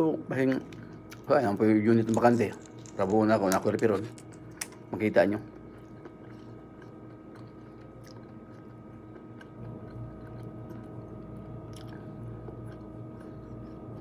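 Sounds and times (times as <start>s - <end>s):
low electrical hum: 0.0s - 14.0s
person chewing food: 5.5s - 14.0s.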